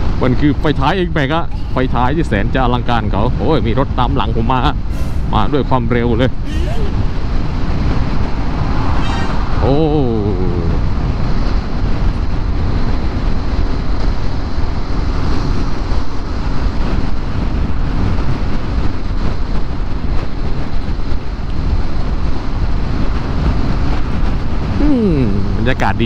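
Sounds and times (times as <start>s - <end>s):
road rumble: 0.0s - 26.0s
wind rush on microphone: 0.0s - 26.0s.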